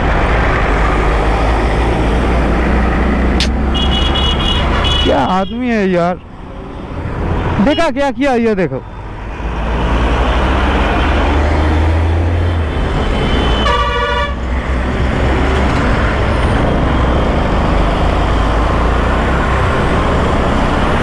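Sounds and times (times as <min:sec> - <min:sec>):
motorcycle engine and road noise: 0:00.0 - 0:21.0
vehicle horn honking: 0:03.7 - 0:05.3, 0:13.3 - 0:14.4.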